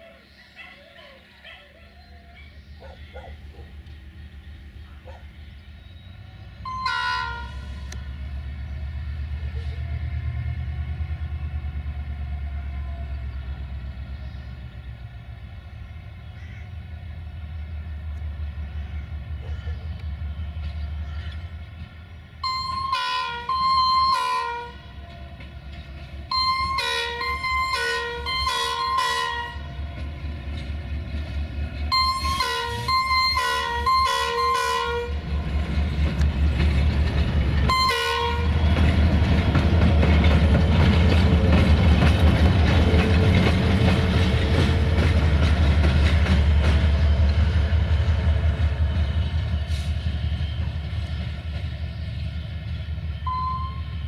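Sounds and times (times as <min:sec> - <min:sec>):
locomotive diesel engine passing: 0:00.0 - 0:54.0
locomotive horn toots: 0:06.6 - 0:08.0, 0:22.4 - 0:25.1, 0:26.3 - 0:29.8, 0:31.9 - 0:35.3, 0:37.6 - 0:39.0, 0:53.2 - 0:54.0.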